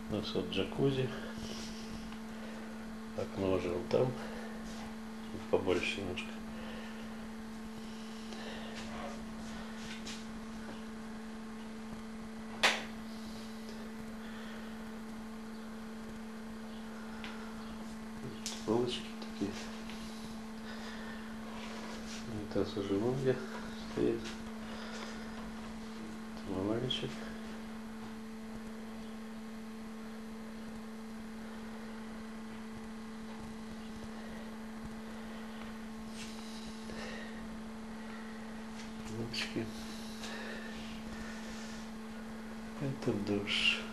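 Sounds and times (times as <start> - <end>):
steady low hum: 0.0 - 43.9.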